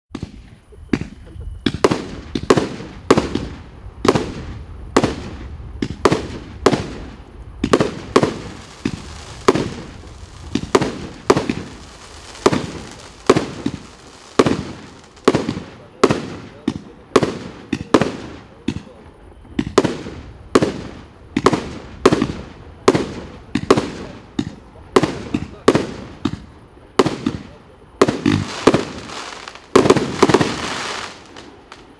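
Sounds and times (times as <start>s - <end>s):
firework bangs: 0.1s - 19.0s, 19.6s - 31.9s.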